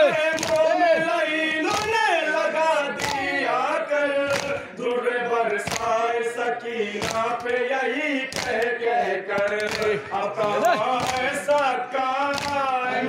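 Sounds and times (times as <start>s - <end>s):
men chanting in chorus: 0.0s - 13.0s
hands striking chest: 5.7s - 5.9s, 9.3s - 9.9s.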